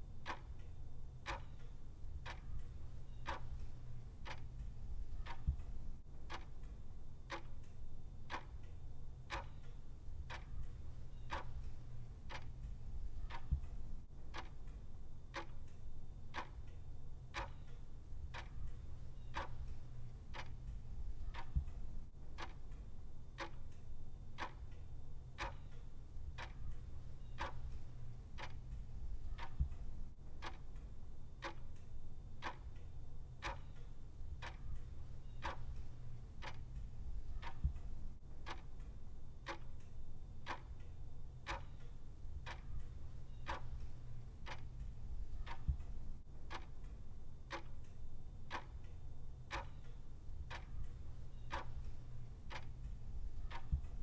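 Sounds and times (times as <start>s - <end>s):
low steady hum: 0.0s - 54.0s
clock ticking: 0.2s - 54.0s.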